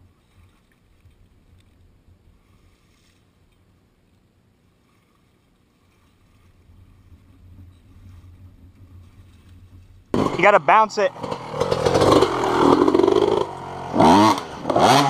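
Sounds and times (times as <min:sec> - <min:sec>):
water splashing and sloshing: 0:00.0 - 0:10.5
low rumble: 0:06.1 - 0:14.7.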